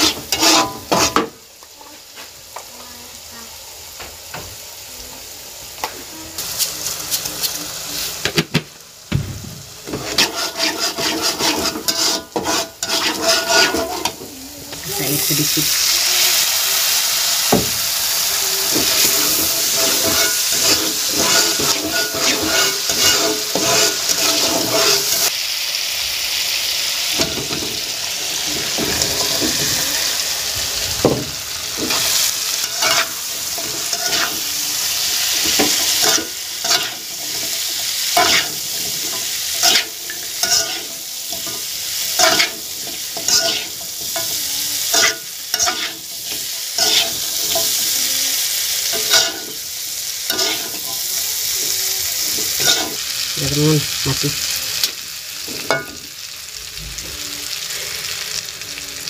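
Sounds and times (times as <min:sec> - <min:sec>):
food frying in hot oil: 0:00.0 - 0:59.0
spatula scraping and knocking: 0:09.8 - 0:14.2.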